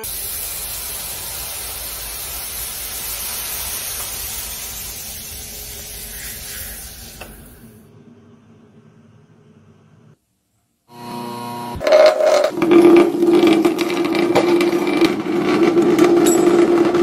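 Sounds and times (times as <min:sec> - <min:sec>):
hissing sizzle of melting wax: 0:00.0 - 0:07.8.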